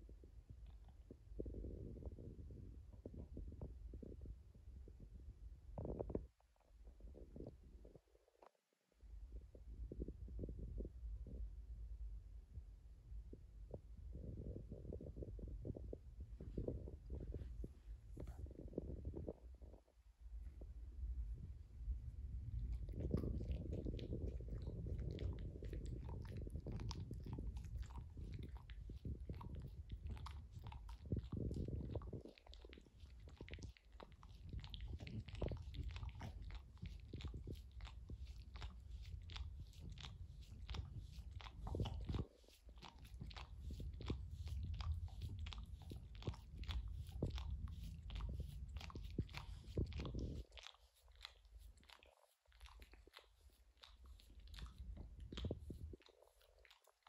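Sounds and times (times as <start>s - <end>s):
low rumble: 9.0s - 51.9s, 53.8s - 56.0s
dog licking wet smacking: 22.5s - 57.0s.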